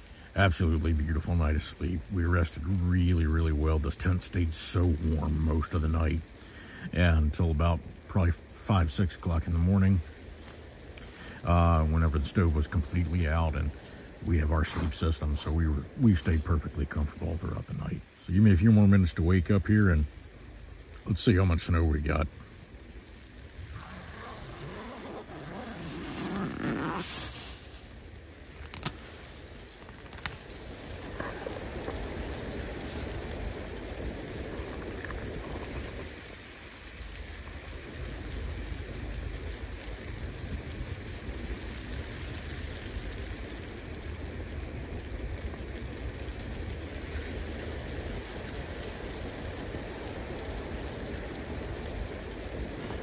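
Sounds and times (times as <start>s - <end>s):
wind in pine woods: 0.0s - 53.0s
wind rumble on microphone: 22.3s - 53.0s
tent fabric rustling: 23.6s - 36.1s.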